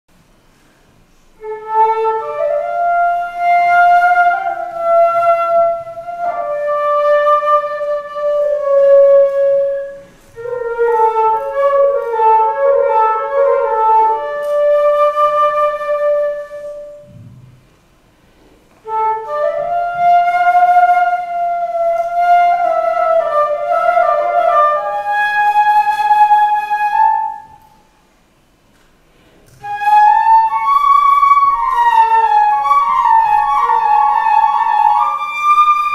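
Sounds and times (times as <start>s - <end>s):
flute melody: 1.4s - 17.6s, 18.8s - 27.9s, 29.5s - 35.9s.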